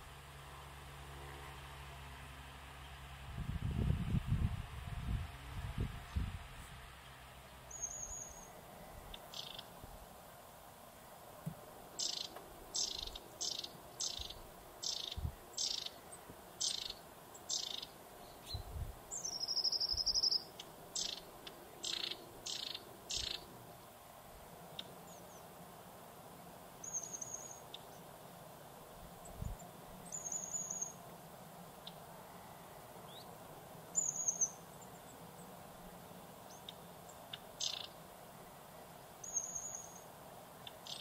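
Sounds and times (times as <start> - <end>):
bird buzzing trill: 5.8 - 9.8, 12.0 - 23.6, 26.8 - 28.1, 29.2 - 31.1, 31.7 - 38.1, 38.9 - 41.0.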